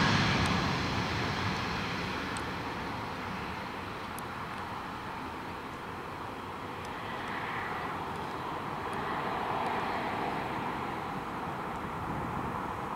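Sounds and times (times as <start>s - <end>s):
distant jet engine rushing: 0.0s - 12.9s.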